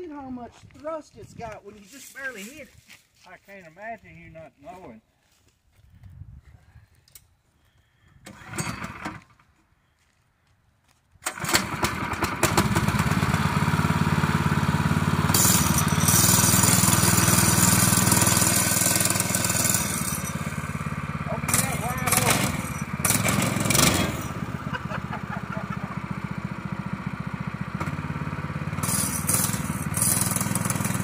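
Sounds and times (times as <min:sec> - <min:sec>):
small engine running: 0:11.2 - 0:31.0.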